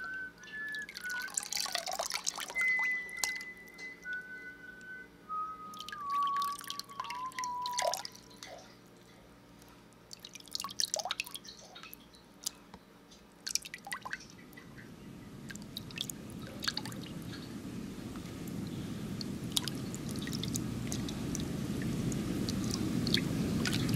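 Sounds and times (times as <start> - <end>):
water drops plinking: 0.6 - 4.3, 5.7 - 8.7, 13.5 - 23.9
low rushing: 14.4 - 23.9.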